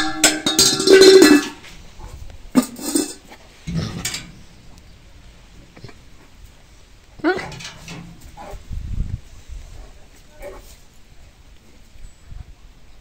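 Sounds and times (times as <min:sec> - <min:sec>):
metal bars clanking: 0:00.0 - 0:01.6, 0:02.6 - 0:04.5, 0:07.2 - 0:08.6.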